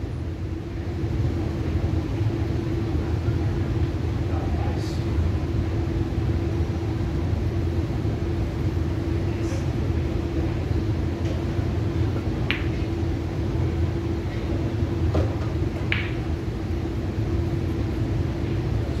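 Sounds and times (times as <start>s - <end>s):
ventilation hum: 0.0s - 19.0s
pool balls clicking: 12.4s - 12.9s, 15.2s - 16.4s.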